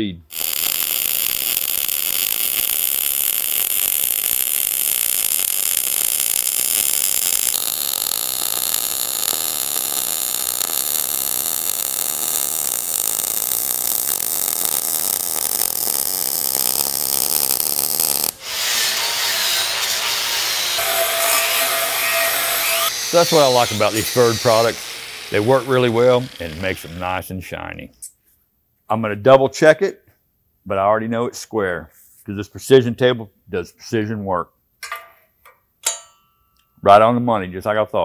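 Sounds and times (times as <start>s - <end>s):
welding arc sizzling: 0.3s - 27.3s
angle grinder grinding: 5.6s - 27.2s.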